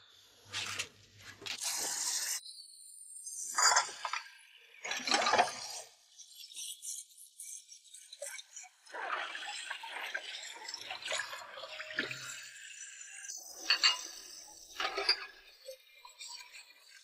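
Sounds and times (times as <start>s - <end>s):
crockery clinks and clatters: 13.6s - 15.3s.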